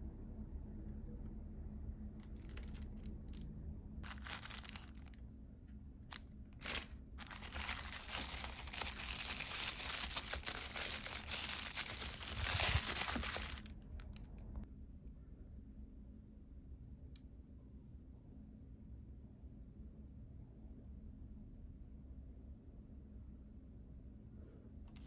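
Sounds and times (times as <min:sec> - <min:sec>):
plastic wrapping crinkling: 0:02.3 - 0:02.9, 0:04.0 - 0:05.2, 0:06.1 - 0:14.6.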